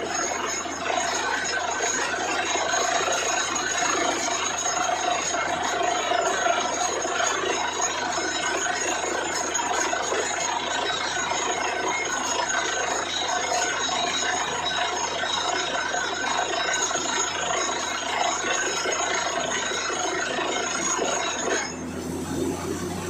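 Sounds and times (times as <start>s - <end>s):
drilling rig running: 0.0s - 23.0s
high metallic ringing tones: 0.0s - 23.0s
engine hum: 21.7s - 23.0s.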